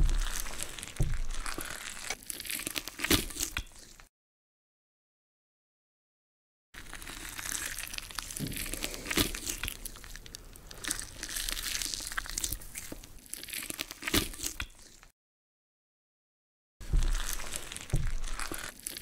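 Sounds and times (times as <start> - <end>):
dry crunching and crackling: 0.0 - 4.1, 6.8 - 15.1, 16.8 - 19.0.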